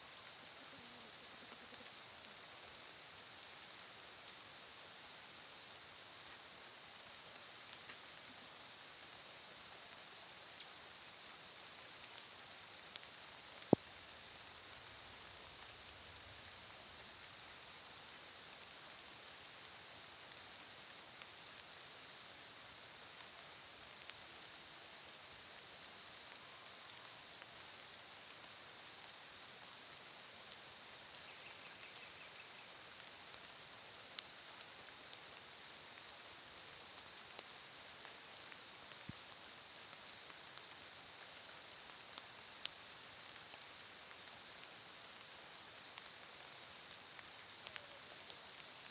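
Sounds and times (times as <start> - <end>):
soft ticks: 1.5 - 2.8, 7.4 - 8.2, 11.6 - 19.0, 23.2 - 24.6, 30.9 - 36.2, 37.0 - 48.9.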